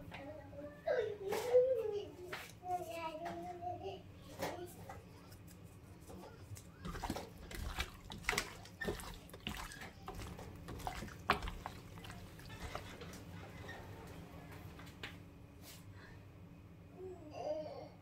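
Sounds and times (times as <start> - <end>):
wet squelches and slaps: 6.6 - 13.0.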